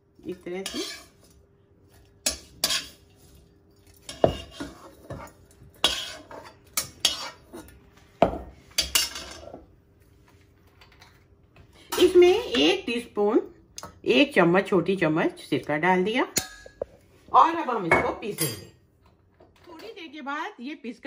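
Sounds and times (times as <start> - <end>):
spoon scraping and clinking metal: 0.6 - 1.3, 2.2 - 7.8.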